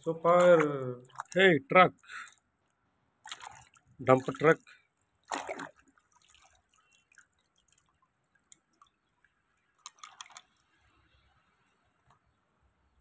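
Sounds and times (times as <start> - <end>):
water dripping: 0.0 - 2.4, 3.2 - 10.8
water splashing: 0.0 - 2.4, 3.2 - 10.9
toy swished in water: 3.2 - 4.4, 5.2 - 9.0, 9.7 - 10.8.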